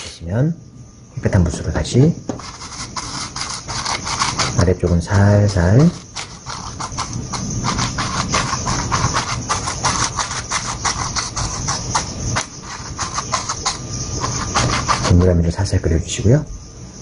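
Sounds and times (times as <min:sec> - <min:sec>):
brush scratching across canvas: 0:02.3 - 0:15.5.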